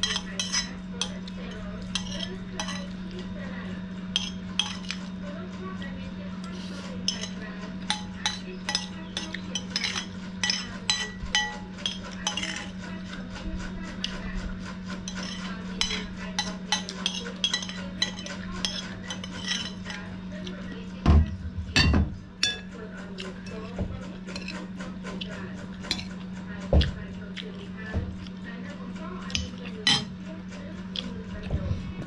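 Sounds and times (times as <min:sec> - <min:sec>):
metal spoon clinking on plate: 0:00.0 - 0:03.0, 0:04.2 - 0:05.1, 0:07.0 - 0:12.8, 0:15.1 - 0:20.1, 0:22.4 - 0:22.7, 0:25.9 - 0:26.1, 0:29.3 - 0:30.1.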